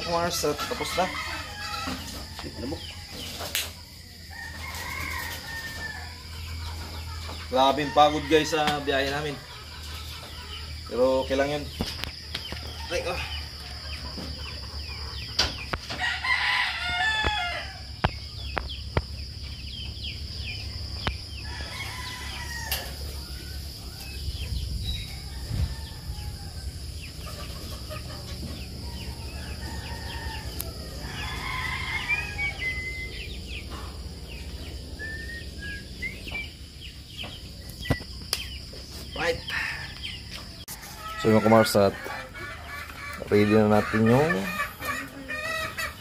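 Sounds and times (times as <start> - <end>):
rooster crowing: 0.0 - 3.2, 4.2 - 9.4, 15.9 - 18.0, 20.7 - 23.8, 25.0 - 27.0, 28.4 - 35.4, 39.2 - 46.0
chickens clucking: 0.0 - 46.0.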